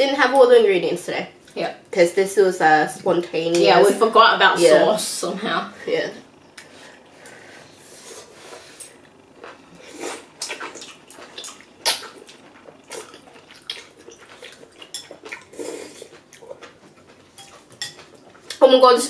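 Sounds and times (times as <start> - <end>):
chewing: 8.5 - 18.6.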